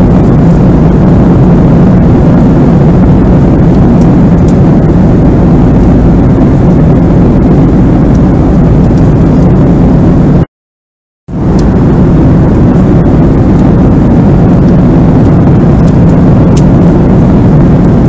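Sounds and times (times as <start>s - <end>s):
airplane cabin engine rush: 0.0s - 10.5s, 11.3s - 18.0s.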